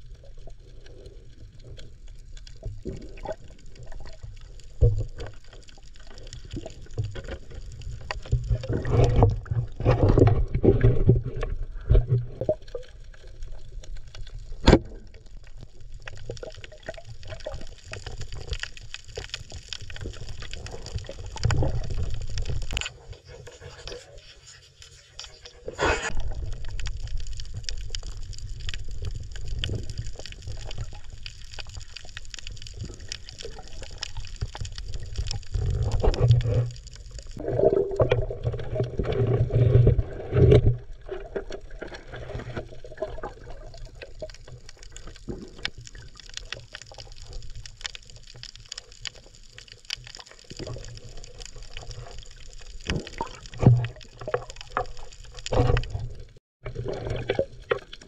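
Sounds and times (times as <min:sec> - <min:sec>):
muffled underwater rumble: 0:00.0 - 0:58.0.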